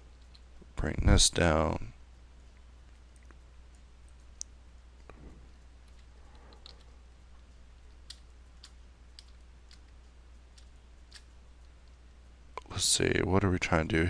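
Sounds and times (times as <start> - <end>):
steady low hum: 0.0 - 14.0
computer mouse and keyboard clicks: 5.9 - 6.9.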